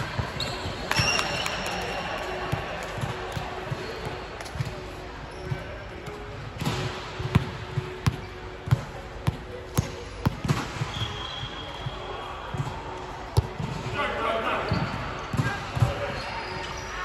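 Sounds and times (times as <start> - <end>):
volleyball bouncing on hard floor: 6.6 - 11.0, 13.4 - 13.8.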